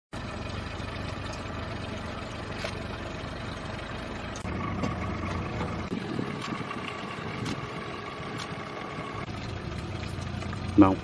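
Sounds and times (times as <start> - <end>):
boat engine droning: 0.2 - 11.0.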